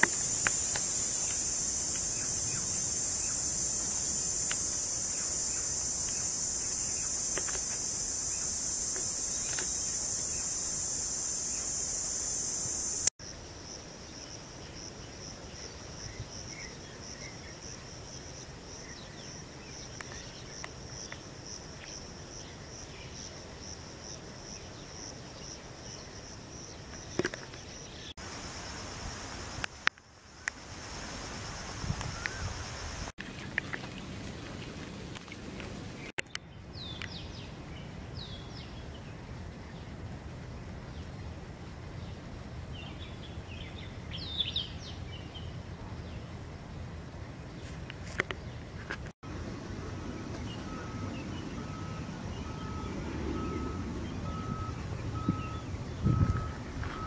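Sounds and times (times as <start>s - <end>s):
high-pitched insect drone: 0.0s - 13.2s, 26.6s - 33.1s
pulsing insect chirping: 0.0s - 33.1s, 49.3s - 57.0s.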